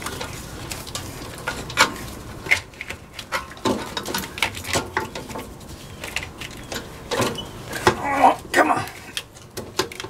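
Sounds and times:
wires rustling and scraping: 0:00.0 - 0:10.0.

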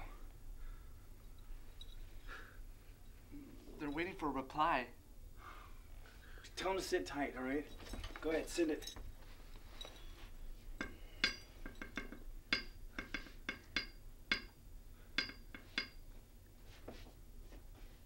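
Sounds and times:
metal tool tapping on a pipe: 0:10.8 - 0:14.6, 0:15.2 - 0:16.1.

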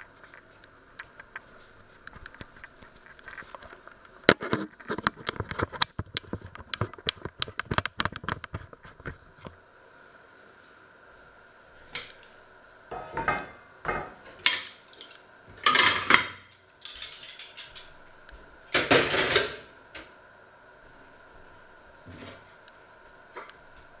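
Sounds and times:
plates and pot lid clattering: 0:12.9 - 0:14.8, 0:15.6 - 0:17.9.

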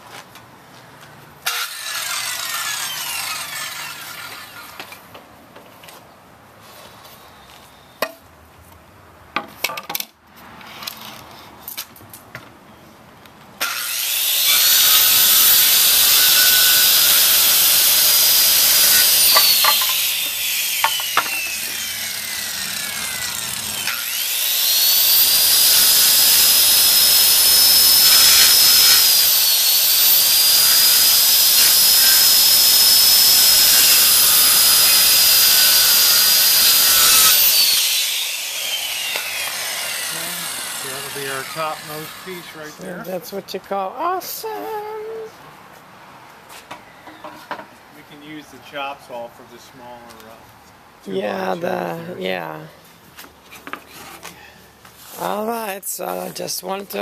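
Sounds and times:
circular saw cutting wood: 0:01.4 - 0:05.0, 0:13.6 - 0:43.1.

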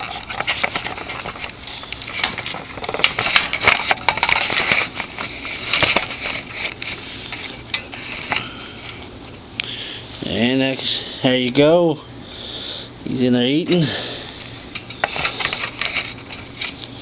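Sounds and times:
crackling and rustling in wire cage: 0:00.0 - 0:09.2, 0:14.4 - 0:17.0.

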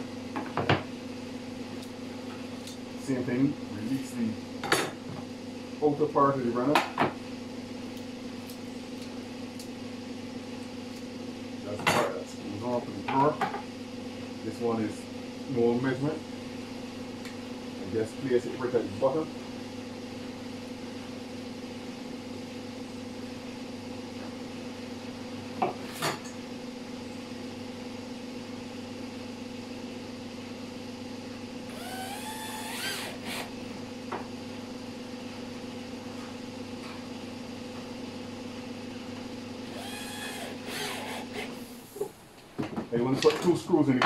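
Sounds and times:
cordless drill whirring: 0:31.7 - 0:33.5, 0:39.6 - 0:41.8.

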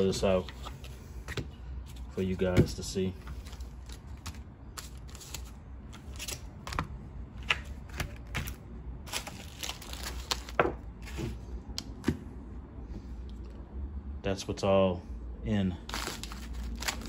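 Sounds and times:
plastic packets rustling: 0:03.2 - 0:06.9, 0:07.6 - 0:11.4, 0:15.8 - 0:17.0.

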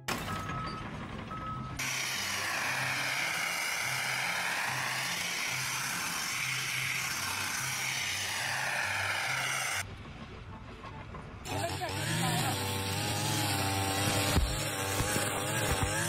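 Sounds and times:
high-pressure blasting jet hiss: 0:01.8 - 0:09.8.

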